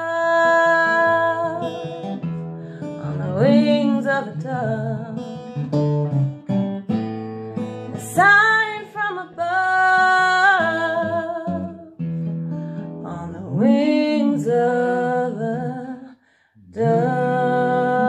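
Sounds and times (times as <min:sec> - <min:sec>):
woman singing with vibrato: 0:00.0 - 0:02.1, 0:03.0 - 0:05.4, 0:08.0 - 0:11.9, 0:13.0 - 0:18.0
acoustic guitar: 0:00.0 - 0:18.0.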